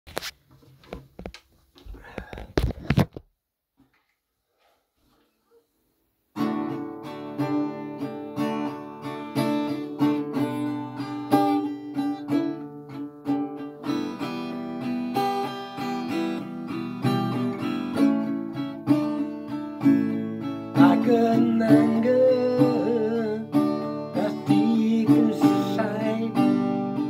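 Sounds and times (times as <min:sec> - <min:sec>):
acoustic guitar strumming: 0:06.3 - 0:27.0.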